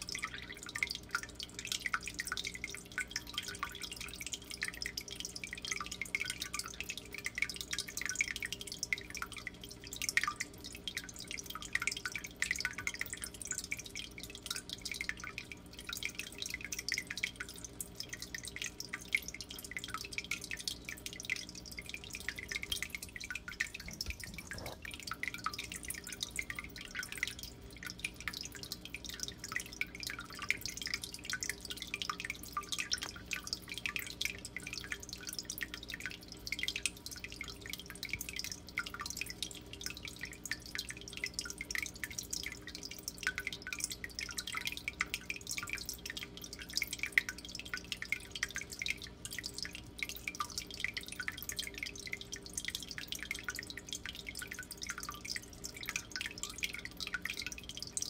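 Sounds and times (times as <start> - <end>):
water trickling and dripping: 0.0 - 58.0
steady low hum: 15.3 - 36.5.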